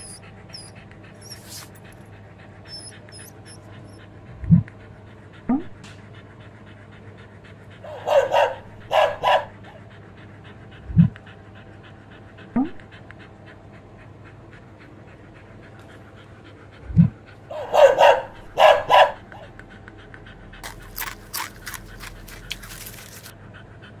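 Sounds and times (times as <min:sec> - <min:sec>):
dog sniffing: 0:00.0 - 0:02.1, 0:20.6 - 0:23.3
dog panting: 0:00.0 - 0:24.0.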